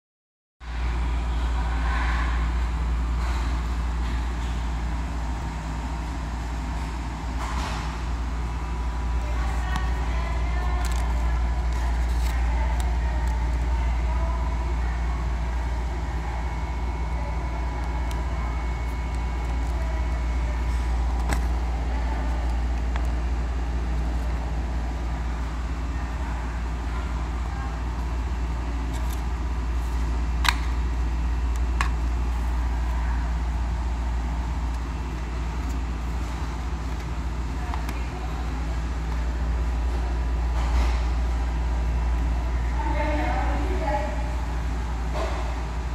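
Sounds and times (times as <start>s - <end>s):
paper wrappers crinkling: 9.5s - 13.7s.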